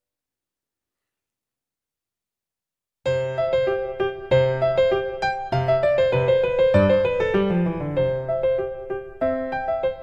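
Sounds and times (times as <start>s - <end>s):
gentle piano melody: 3.1s - 10.0s.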